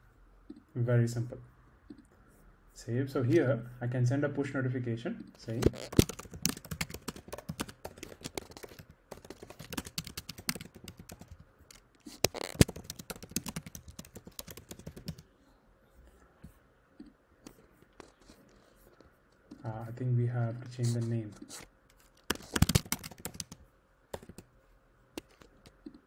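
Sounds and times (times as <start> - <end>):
typing on a keyboard: 5.5 - 15.2, 21.9 - 24.5.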